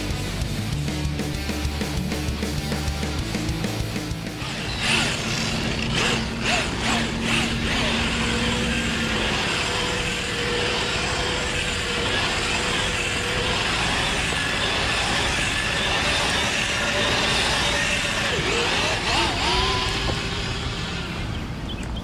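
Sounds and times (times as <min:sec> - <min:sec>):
tyres churning sand: 0:00.0 - 0:21.6
rc truck motor whining: 0:02.5 - 0:22.0.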